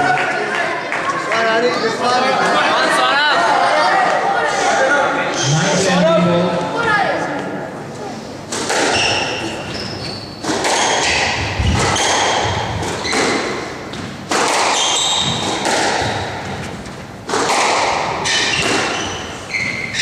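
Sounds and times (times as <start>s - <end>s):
squash ball hitting walls: 8.5s - 9.7s, 10.4s - 19.8s
shoes squeaking on wooden floor: 8.9s - 10.4s, 18.2s - 20.0s.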